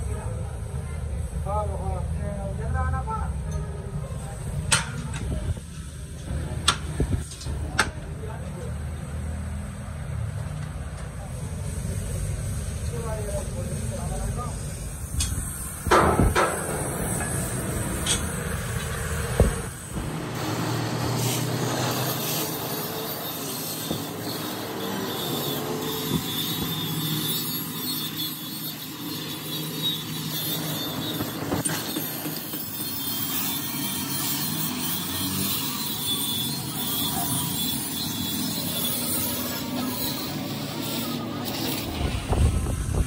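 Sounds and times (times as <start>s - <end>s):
cutting torch flame hissing: 11.1s - 43.0s.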